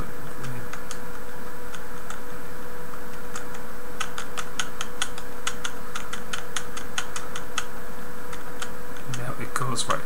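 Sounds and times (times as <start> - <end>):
steady hum: 0.0 - 10.0
keyboard keys clicking: 3.1 - 7.7.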